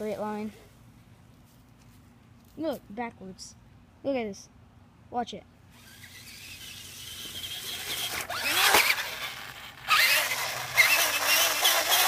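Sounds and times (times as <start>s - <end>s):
toy truck electric motor whirring: 5.7s - 12.0s.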